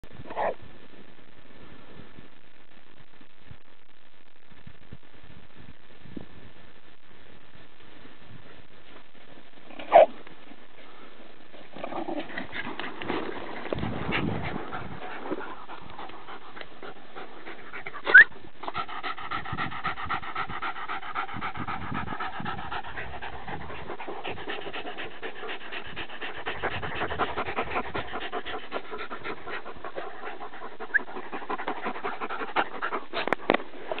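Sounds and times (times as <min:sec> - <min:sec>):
dogs panting: 0:11.5 - 0:34.0.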